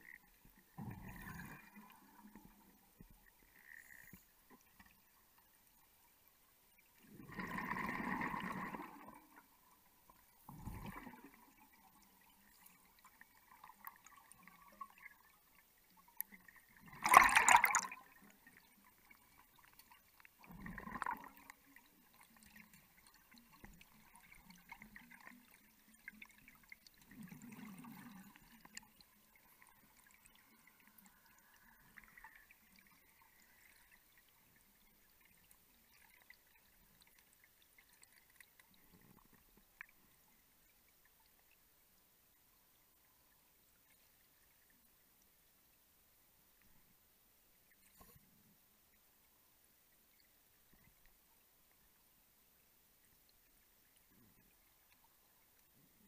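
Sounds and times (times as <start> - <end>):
underwater bubbles gurgling: 0.0 - 5.5, 6.8 - 41.5.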